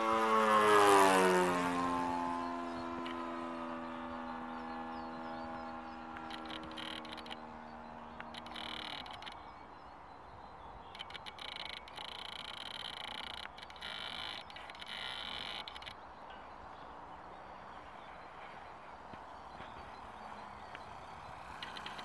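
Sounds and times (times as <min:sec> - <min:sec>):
model plane engine drone: 0:00.0 - 0:16.1, 0:19.6 - 0:22.0
high-pitched chirring: 0:06.1 - 0:07.5, 0:08.2 - 0:09.5, 0:10.9 - 0:16.0.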